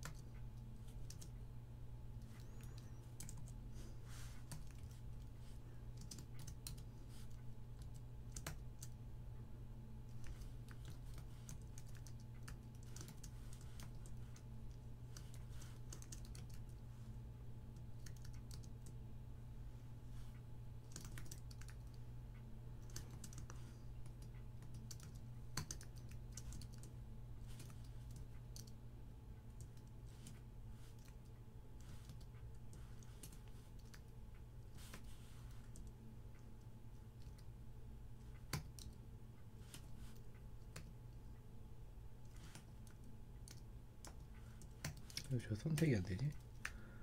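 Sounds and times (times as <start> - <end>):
keyboard typing: 0.0 - 1.3, 2.2 - 3.6, 4.3 - 9.0, 10.1 - 16.8, 17.7 - 19.0, 20.8 - 22.0, 22.8 - 28.8, 29.4 - 36.5, 37.1 - 37.5, 38.2 - 39.0, 39.6 - 41.2, 42.2 - 46.8
faint steady hum: 0.0 - 47.0.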